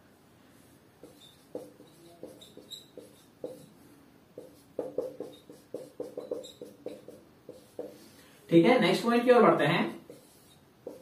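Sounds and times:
marker writing on whiteboard: 0.6s - 3.8s, 4.4s - 8.2s, 9.9s - 11.0s.

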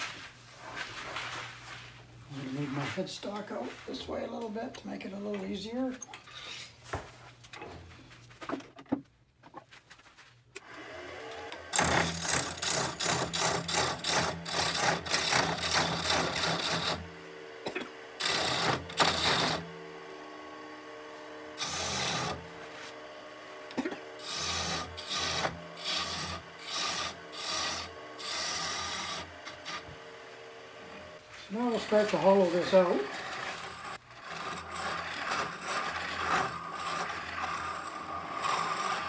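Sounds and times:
lathe tool scraping wood: 2.3s - 6.8s, 10.7s - 39.0s
lathe motor hum: 10.6s - 39.0s.

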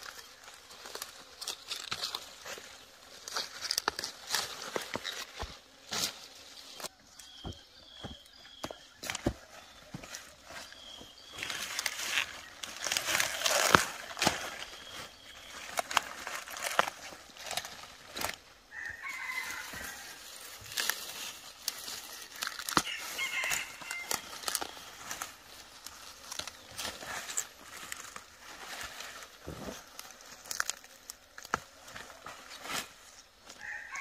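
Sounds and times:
rustling: 9.0s - 34.0s
chickens calling: 17.4s - 30.8s.

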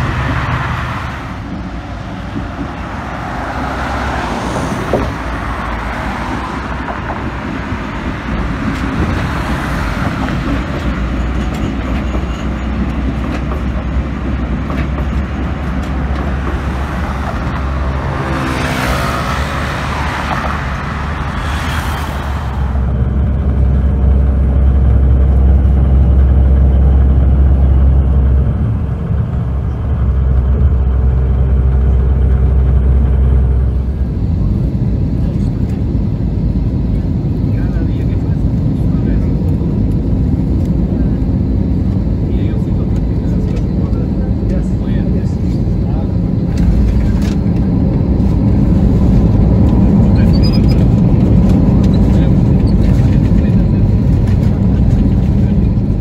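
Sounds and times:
loud vehicle passing: 0.0s - 11.9s, 13.0s - 37.6s
bus and cars going by: 0.0s - 56.0s
muffled rumble of moving vehicle: 0.0s - 56.0s.

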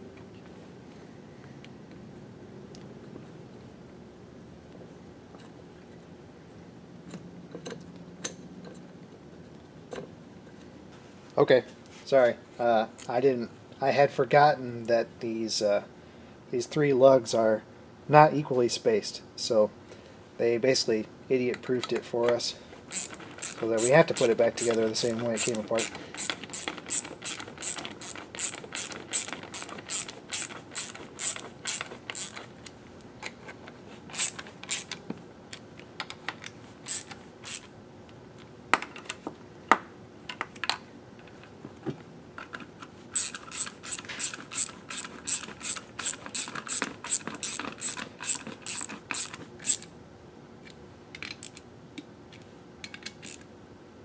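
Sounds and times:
ratchet wrench clicking: 22.9s - 32.4s, 34.1s - 35.0s, 36.9s - 37.7s, 43.2s - 49.9s, 51.4s - 51.6s, 53.2s - 53.4s.

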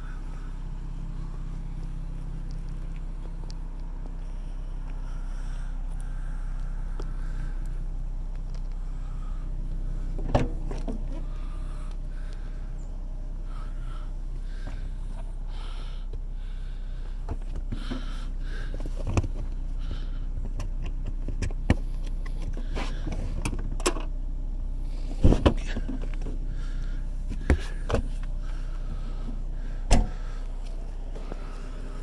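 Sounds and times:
low hum: 0.0s - 32.0s
thumps: 29.9s - 30.2s.

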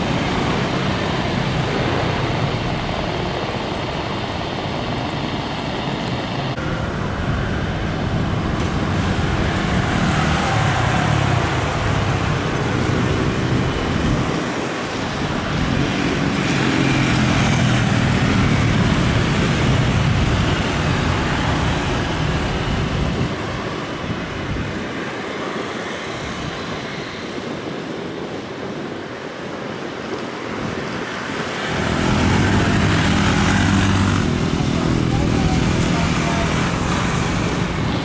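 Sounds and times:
jet engines rumble and hiss: 0.0s - 38.0s.

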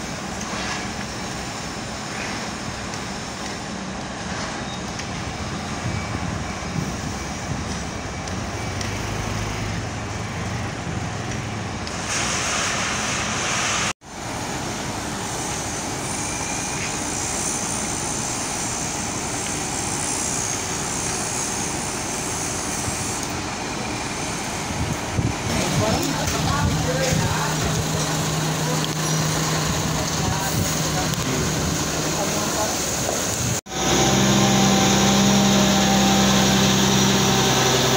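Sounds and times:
heavy diesel engines rumbling: 0.0s - 37.9s
loud hiss: 11.9s - 37.9s.

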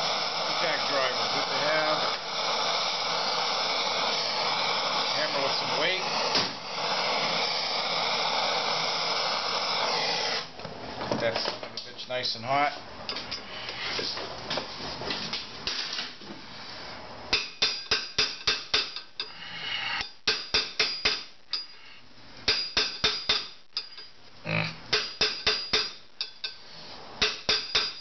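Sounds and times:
hammer striking impact driver: 6.2s - 6.6s.

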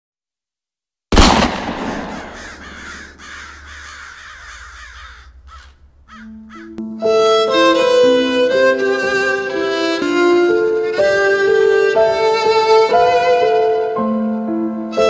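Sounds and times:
loud bang: 1.1s - 3.9s
crows cawing: 1.6s - 6.8s.

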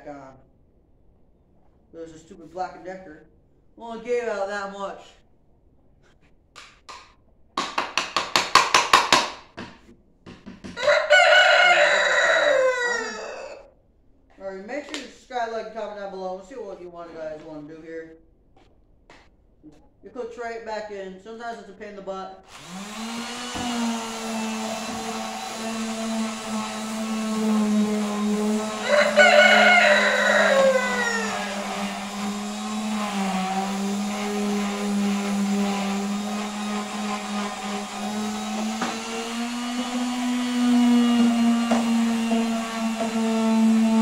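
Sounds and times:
rooster crowing: 10.8s - 13.7s, 28.6s - 32.1s
orbital sander on wood: 22.5s - 44.0s.

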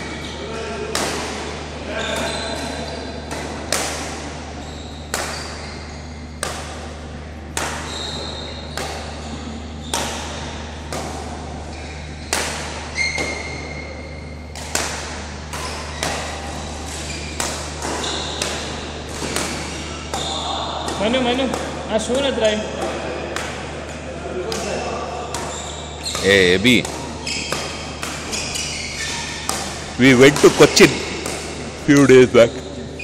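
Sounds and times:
shoe squeaks: 0.0s - 0.5s, 1.9s - 3.2s, 4.6s - 6.4s, 7.8s - 10.2s, 11.7s - 12.3s, 12.9s - 14.5s, 15.7s - 18.4s, 19.2s - 20.6s, 25.4s - 31.2s, 31.9s - 33.0s
rackets hitting shuttlecock: 0.8s - 32.2s.

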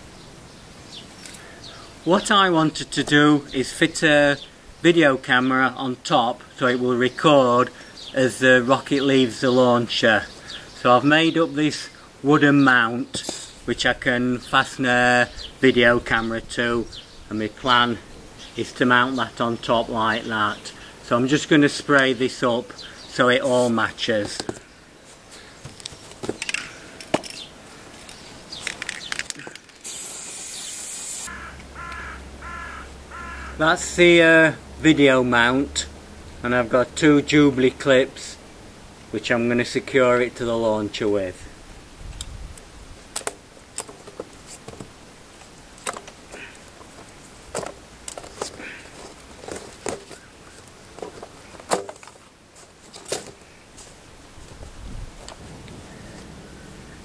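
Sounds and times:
spray can hissing: 13.2s - 13.6s, 29.8s - 31.3s
spray can rattling: 13.2s - 13.6s, 28.6s - 31.3s
crows cawing: 31.3s - 33.6s.

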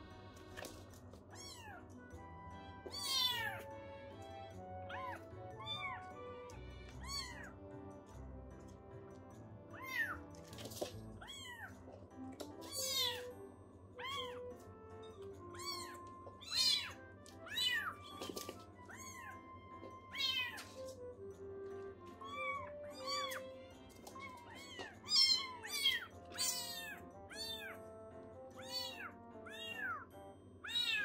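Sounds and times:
soft background music: 0.0s - 31.0s
kittens mewing: 2.9s - 3.7s, 4.8s - 6.2s, 6.9s - 7.6s, 12.6s - 13.3s, 14.0s - 14.6s, 15.4s - 20.8s, 22.2s - 27.8s, 28.6s - 31.0s.

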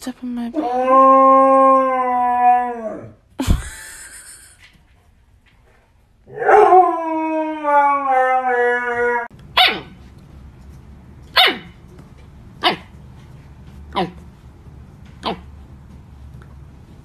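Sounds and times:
husky howling: 0.6s - 3.2s, 6.3s - 9.3s
puppy yipping: 9.6s - 10.0s, 11.3s - 11.7s, 12.6s - 12.9s.

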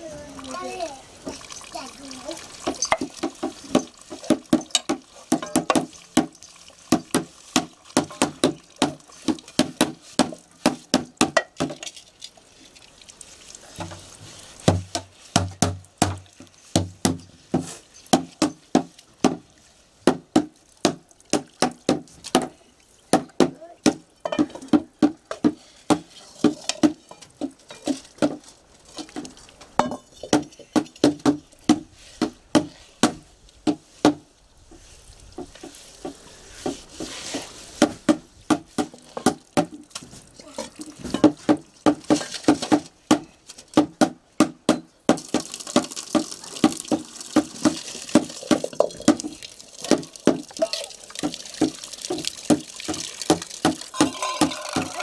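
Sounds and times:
running water: 0.0s - 33.6s, 34.3s - 42.7s, 45.1s - 55.0s
steel dishes clinking: 24.2s - 24.6s, 29.8s - 30.4s, 53.9s - 55.0s
scrubbing metal woks: 47.5s - 55.0s.

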